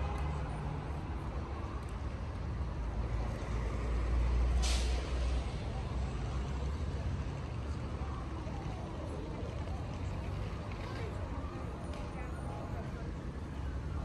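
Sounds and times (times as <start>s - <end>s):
city street traffic: 0.0s - 14.0s
air brakes hissing: 4.5s - 5.4s.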